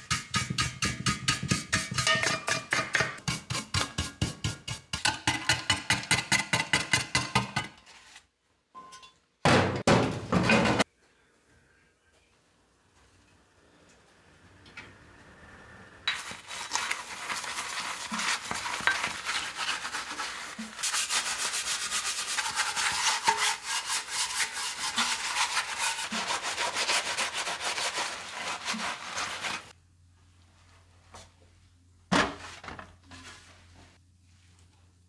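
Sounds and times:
hand scrubbing rusty metal: 16.1s - 29.7s.

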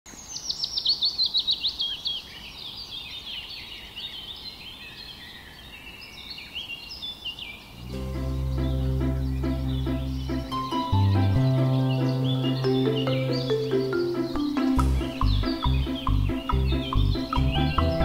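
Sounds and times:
songbirds chirping and singing: 0.1s - 18.0s
music with low note: 7.8s - 18.0s.

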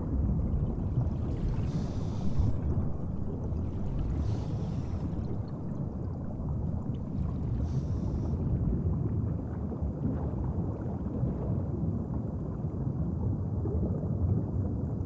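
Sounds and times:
underwater rumble: 0.0s - 15.0s
washes of high hiss: 1.6s - 2.6s, 4.1s - 5.2s, 7.6s - 8.3s.

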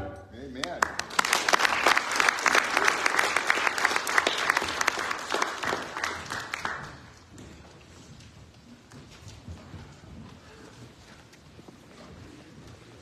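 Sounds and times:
congregation applauding: 0.6s - 7.3s.

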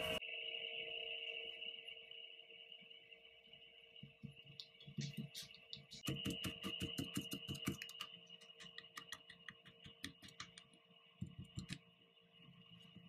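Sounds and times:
granules clicking and ticking: 4.5s - 11.8s.

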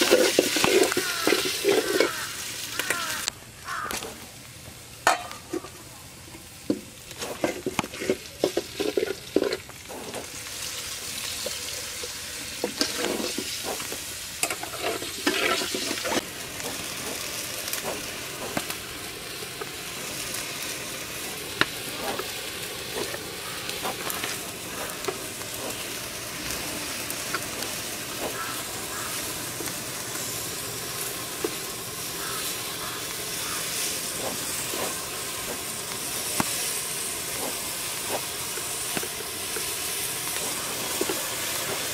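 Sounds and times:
metal spatula scraping a pot: 0.0s - 2.2s, 7.2s - 10.3s, 12.6s - 18.6s
rice and onions sizzling in oil: 0.0s - 41.9s.

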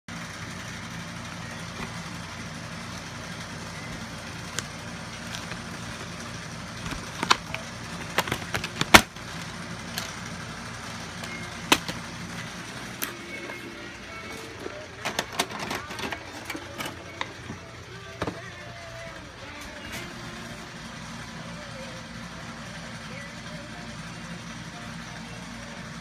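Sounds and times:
steady low hum: 0.1s - 26.0s
plastic case clicks and snaps: 6.9s - 9.1s, 11.3s - 12.0s.

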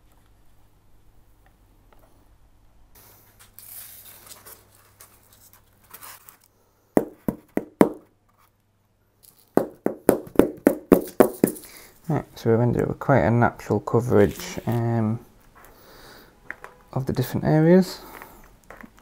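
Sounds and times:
knocks on a board: 7.0s - 8.0s, 9.6s - 11.6s.

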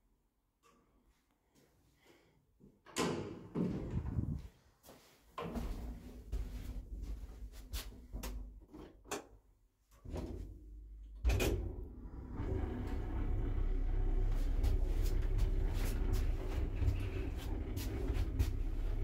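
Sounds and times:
lift low rumble: 3.7s - 4.6s, 11.2s - 19.0s.

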